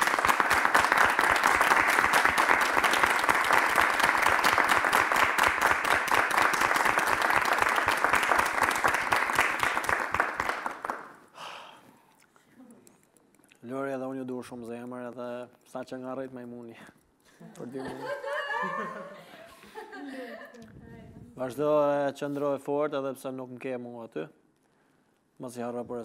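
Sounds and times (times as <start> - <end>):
people applauding: 0.0 - 11.4.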